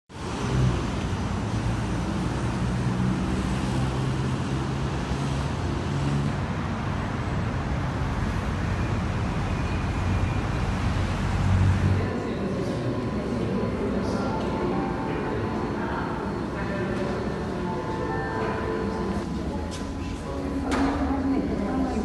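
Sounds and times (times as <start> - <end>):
steady rumble and hiss: 0.2 - 22.0
low hum shifting in pitch: 8.3 - 22.0.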